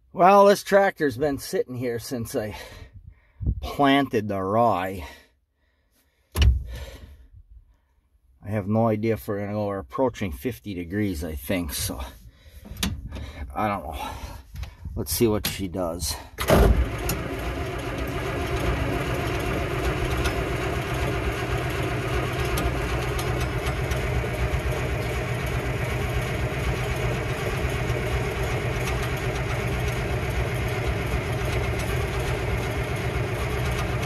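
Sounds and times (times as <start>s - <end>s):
diesel tractor engine idling: 11.8s - 34.0s.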